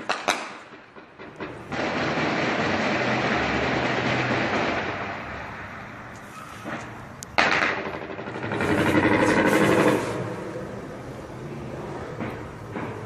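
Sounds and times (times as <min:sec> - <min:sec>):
rapid rattling gunshots: 0:00.0 - 0:05.1, 0:07.4 - 0:10.3
steady rushing noise: 0:00.0 - 0:13.0.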